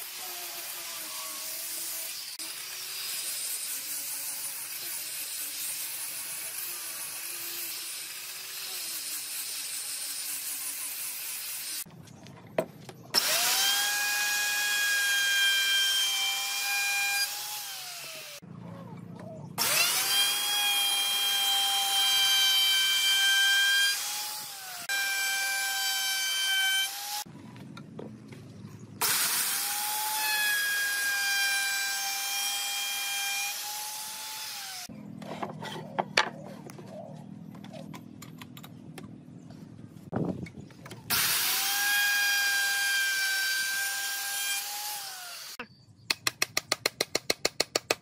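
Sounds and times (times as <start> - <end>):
electric disc sander sanding wood: 0.0 - 11.9, 13.2 - 18.4, 19.6 - 27.3, 29.0 - 34.9, 41.1 - 45.6
router whining: 13.1 - 18.4, 19.6 - 27.3, 41.0 - 45.6.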